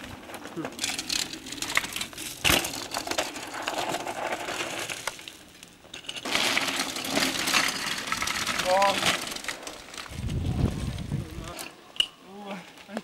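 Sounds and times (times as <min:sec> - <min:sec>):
tyre skidding through gravel: 0:00.0 - 0:05.4, 0:06.2 - 0:11.0
tyres crunching over dirt: 0:00.0 - 0:11.6.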